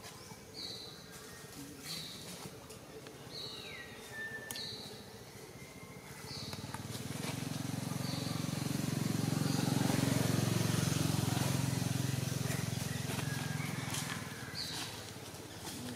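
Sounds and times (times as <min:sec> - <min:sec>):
vehicle engine passing by: 0:06.3 - 0:15.9.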